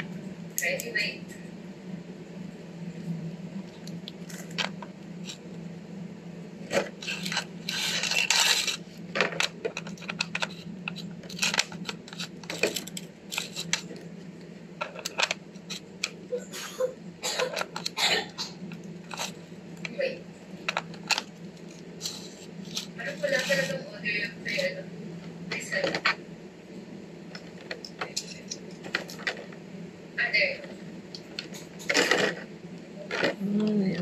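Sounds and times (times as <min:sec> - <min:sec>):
low hum: 0:00.0 - 0:34.0
crinkly rustling: 0:06.7 - 0:14.0.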